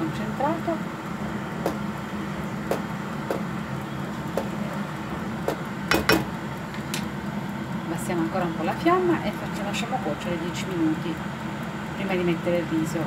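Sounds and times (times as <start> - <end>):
spoon knocking against pan: 5.5 - 6.3.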